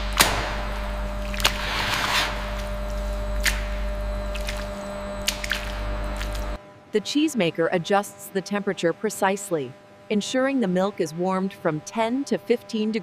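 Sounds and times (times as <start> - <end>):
machinery hum: 0.0 - 13.0
curds squelching and sloshing: 0.1 - 6.6.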